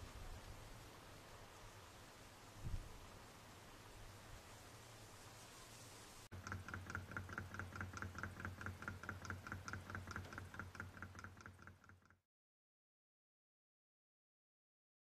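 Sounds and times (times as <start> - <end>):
model engine clicking: 6.3 - 12.2.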